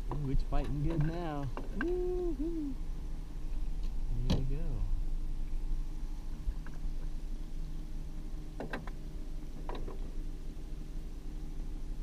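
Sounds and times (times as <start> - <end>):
outboard motor humming: 0.0 - 12.0.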